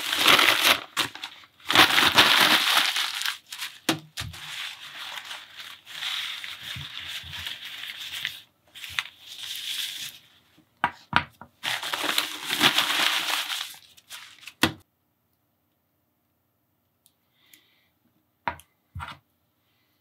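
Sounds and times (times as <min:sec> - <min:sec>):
packing paper crinkling: 0:00.0 - 0:10.4, 0:11.6 - 0:14.7.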